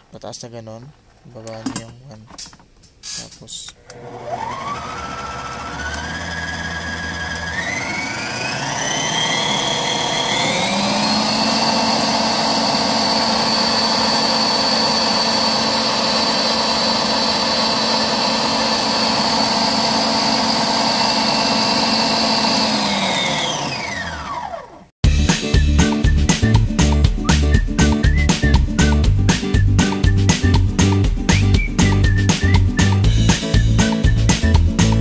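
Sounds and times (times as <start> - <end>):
stand mixer motor whine: 3.8 - 24.9.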